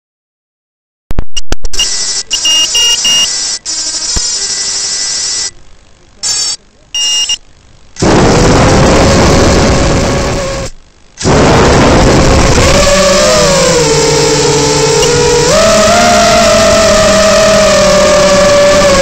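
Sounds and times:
high electronic beeps: 0:01.2 - 0:05.6, 0:06.2 - 0:07.4
quadcopter motors whining: 0:01.8 - 0:05.5, 0:08.0 - 0:19.0.

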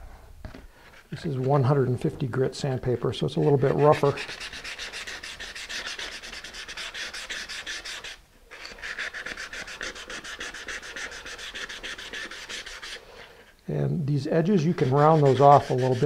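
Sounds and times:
sandpaper scratching on wood: 0:03.4 - 0:13.3, 0:14.4 - 0:16.0.

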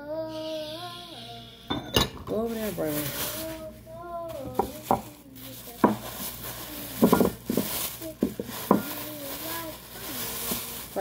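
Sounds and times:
bowls knocking and clinking: 0:01.7 - 0:02.4, 0:05.8 - 0:06.2, 0:07.0 - 0:09.0
plastic bag rustling: 0:02.2 - 0:11.0.

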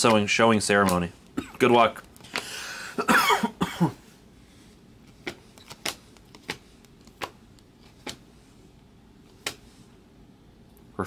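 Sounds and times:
trading cards clicking: 0:00.0 - 0:01.1, 0:05.1 - 0:08.3, 0:09.3 - 0:09.7.

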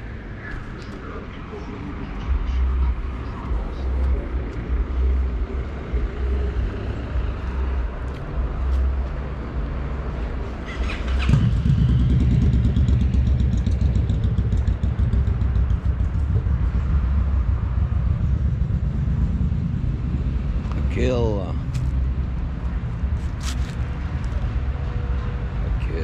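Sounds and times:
street traffic rumbling: 0:00.0 - 0:26.0
motorbike engine droning: 0:10.6 - 0:19.5.

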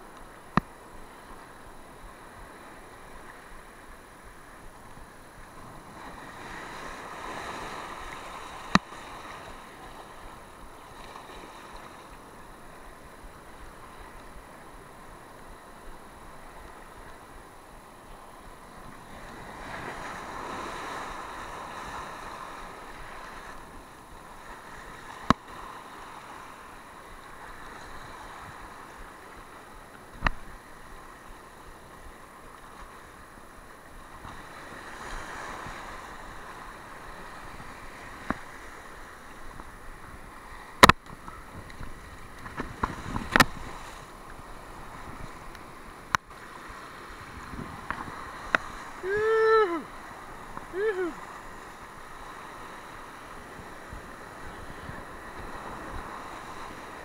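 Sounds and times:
surf washing over rocks: 0:00.0 - 0:57.0.

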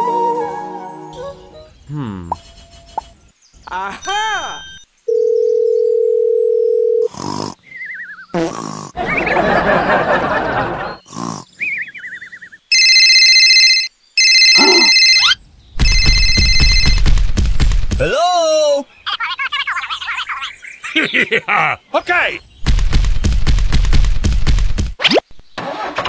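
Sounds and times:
grunt-like noise: 0:01.9 - 0:02.4, 0:07.0 - 0:07.7, 0:08.3 - 0:09.0, 0:11.0 - 0:11.6, 0:14.6 - 0:14.9
phone ringing: 0:04.1 - 0:07.1, 0:12.7 - 0:17.0
telephone dial tone: 0:05.1 - 0:07.1, 0:12.7 - 0:17.0.

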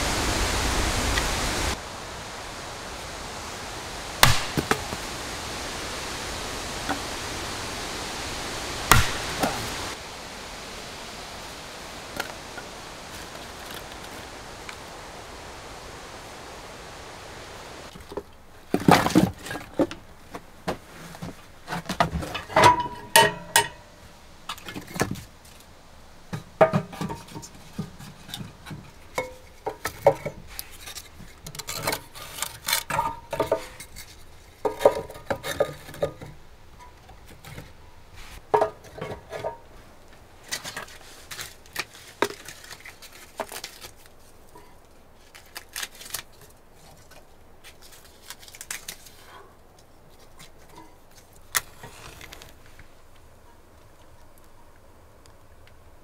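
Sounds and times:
firewood knocking and clattering: 0:17.9 - 0:23.9, 0:26.2 - 0:37.8, 0:38.4 - 0:43.8.

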